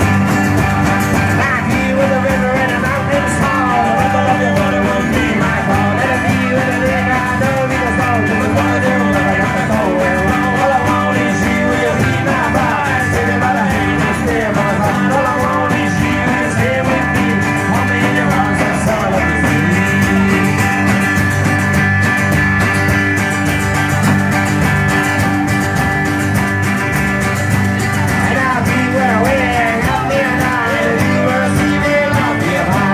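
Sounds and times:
rock band playing: 0:00.0 - 0:32.9
man singing into microphone: 0:01.2 - 0:21.0, 0:28.1 - 0:32.9.

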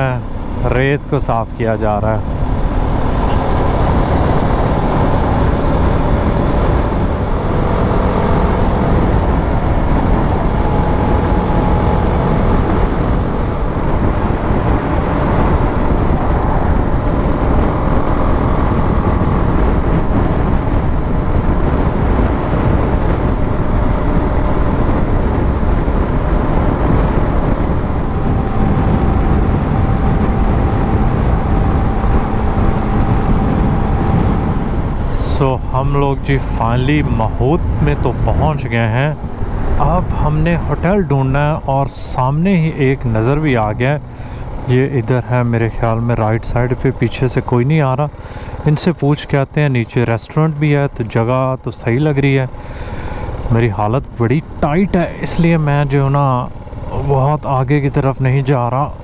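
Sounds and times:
faint motorcycle engine: 0:00.0 - 0:59.0
wind buffeting microphone: 0:00.0 - 0:59.0.

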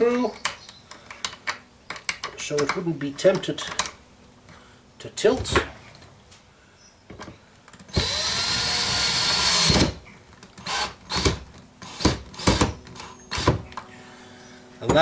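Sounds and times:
cordless drill driving screw: 0:07.9 - 0:10.0, 0:10.6 - 0:13.5.

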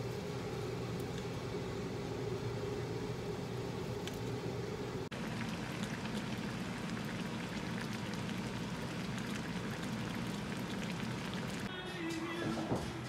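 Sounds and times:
sauce bubbling in a pot: 0:04.8 - 0:11.7.

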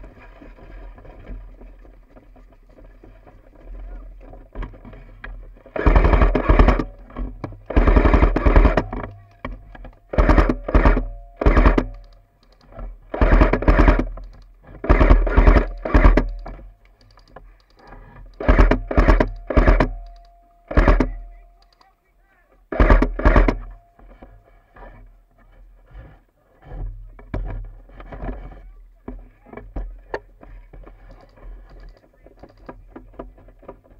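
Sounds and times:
airsoft gun firing bursts: 0:05.7 - 0:09.1, 0:10.1 - 0:12.2, 0:13.0 - 0:16.6, 0:18.3 - 0:21.3, 0:22.7 - 0:23.8.

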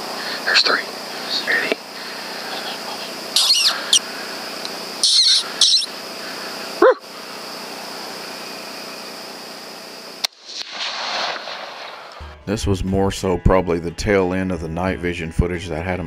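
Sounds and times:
high-pitched hum: 0:00.0 - 0:10.2, 0:12.1 - 0:16.0
coyote barking: 0:03.4 - 0:04.1, 0:05.0 - 0:06.0, 0:06.8 - 0:07.1
coyotes yipping: 0:03.4 - 0:04.1, 0:05.0 - 0:06.0, 0:06.8 - 0:07.1.

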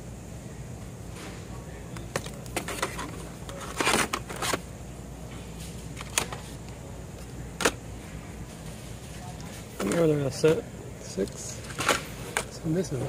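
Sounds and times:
low steady hum: 0:00.0 - 0:13.0
plastic packs rustling and clattering: 0:02.0 - 0:04.6, 0:08.5 - 0:10.6.

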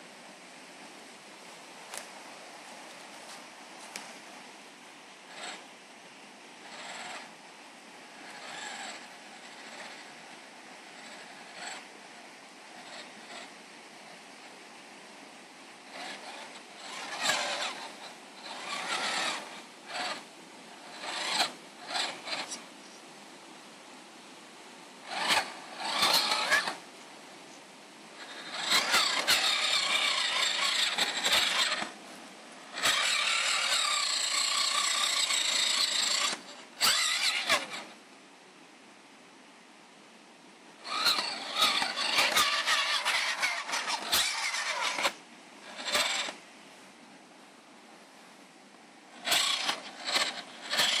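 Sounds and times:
electric motor and gears whining: 0:15.9 - 0:22.6, 0:25.0 - 0:26.8, 0:28.2 - 0:32.0, 0:32.6 - 0:37.9, 0:40.8 - 0:46.4, 0:49.1 - 0:51.0.

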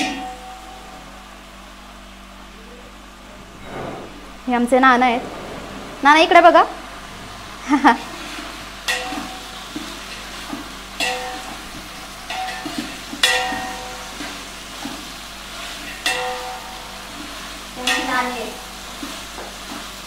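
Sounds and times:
vegetables sizzling in oil: 0:06.0 - 0:20.0.

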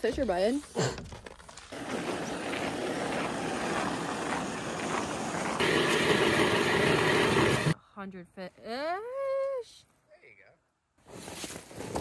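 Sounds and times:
footsteps in snow: 0:01.4 - 0:07.7
electric ice auger drilling: 0:03.0 - 0:07.8.

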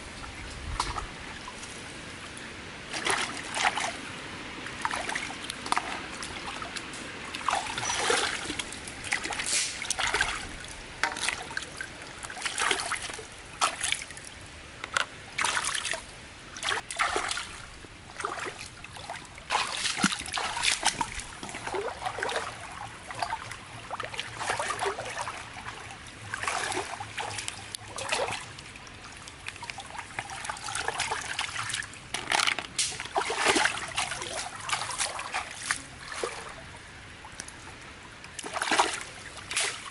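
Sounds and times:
steady water sound: 0:00.0 - 0:39.9
hands splashing in water: 0:19.5 - 0:23.4, 0:29.5 - 0:36.5, 0:38.3 - 0:39.9.

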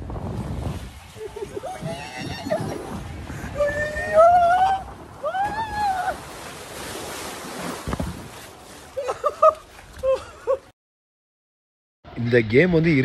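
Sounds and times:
rushing splashing water: 0:00.0 - 0:10.0
man laughing: 0:01.2 - 0:02.9, 0:09.0 - 0:10.7.

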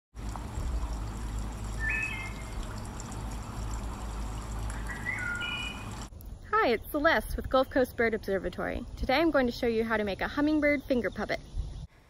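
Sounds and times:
trickle of running water: 0:00.2 - 0:06.1
bird calls of whistled notes: 0:01.8 - 0:02.6, 0:04.7 - 0:06.0.

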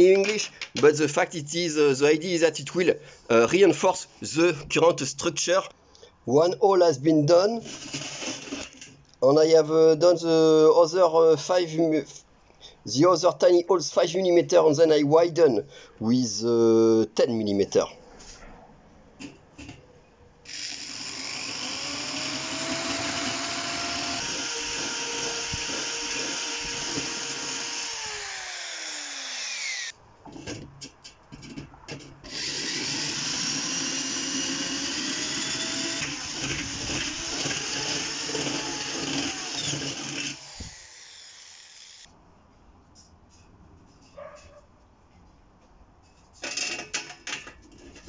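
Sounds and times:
cordless drill drilling metal: 0:07.6 - 0:08.8, 0:20.5 - 0:30.0, 0:32.2 - 0:42.1.

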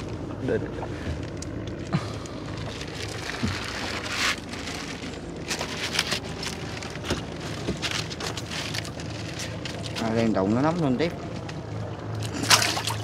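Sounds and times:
steady low hum: 0:00.0 - 0:13.0
wet net rustling: 0:02.2 - 0:10.2, 0:11.2 - 0:13.0
water splashing and dripping: 0:12.0 - 0:13.0.

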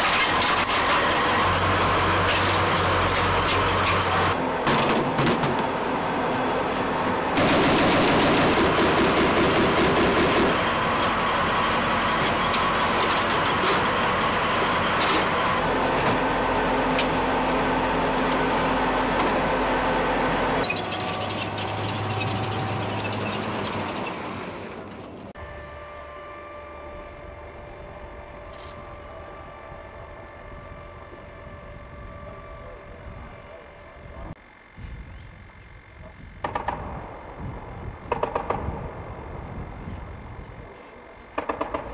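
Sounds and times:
tracked vehicle clatter: 0:00.0 - 0:25.4
automatic gunfire: 0:07.4 - 0:10.6.

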